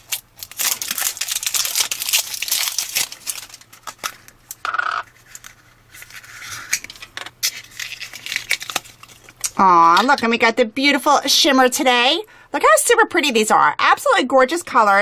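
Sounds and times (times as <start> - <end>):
plastic wrap crinkling and tearing: 0.0 - 9.6.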